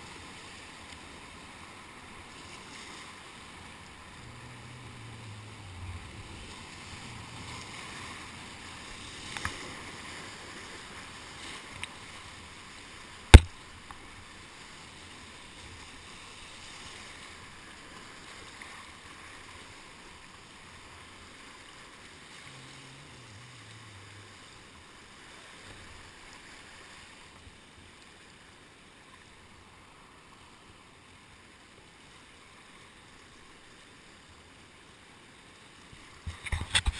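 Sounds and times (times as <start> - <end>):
paddle strokes in water: 0.0 - 28.4
whitewater rushing and splashing: 0.0 - 36.9
sharp knock: 13.3 - 13.5.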